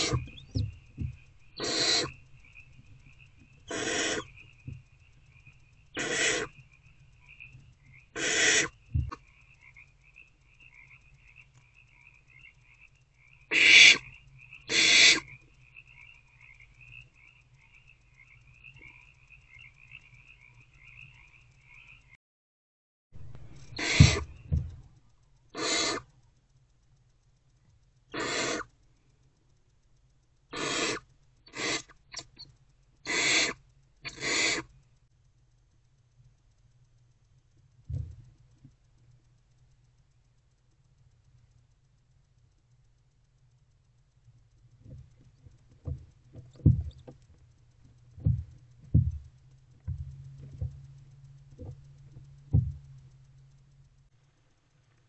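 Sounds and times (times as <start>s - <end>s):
owl nestlings hissing calls: 0.0s - 0.7s, 1.4s - 6.8s, 7.4s - 9.2s, 13.4s - 15.4s, 23.6s - 24.6s, 25.5s - 26.2s, 28.0s - 28.8s, 30.5s - 34.8s.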